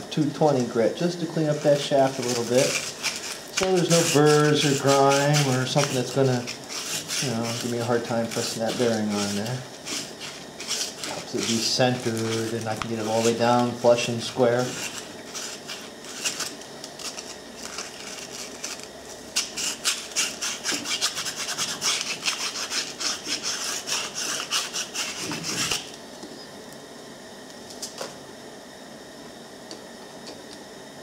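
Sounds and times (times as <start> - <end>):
sandpaper rubbing metal: 1.4 - 18.8, 19.4 - 25.9.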